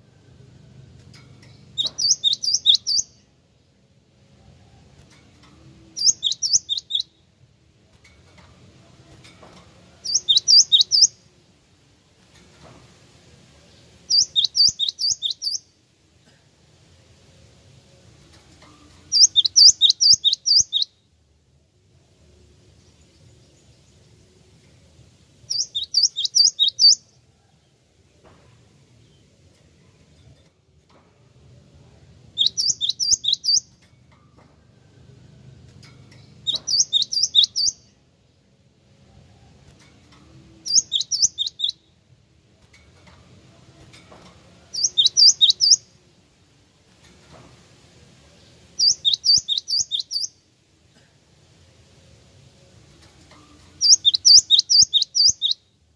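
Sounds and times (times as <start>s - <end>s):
tit bird singing: 1.4s - 3.2s, 5.9s - 7.2s, 10.0s - 11.2s, 14.0s - 15.7s, 19.1s - 21.0s, 25.5s - 27.2s, 32.3s - 33.8s, 36.1s - 37.9s, 40.6s - 41.9s, 44.7s - 46.0s, 48.4s - 50.4s, 53.8s - 55.7s.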